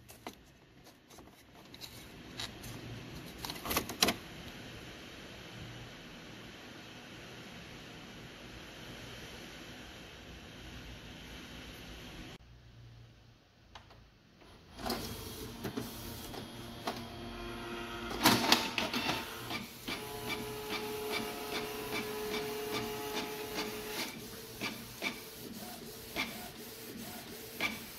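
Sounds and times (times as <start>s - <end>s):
printer motors clicking and whirring: 14.4s - 27.9s
printer clatter: 14.8s - 17.2s, 18.0s - 27.9s
printer motor whine: 14.8s - 27.9s
printer ticks: 18.2s - 25.3s.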